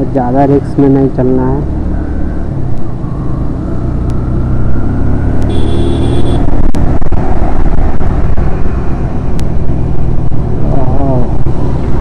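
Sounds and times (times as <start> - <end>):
motorcycle engine running: 1.5 - 8.5
wind rumbling on microphone: 3.9 - 12.0.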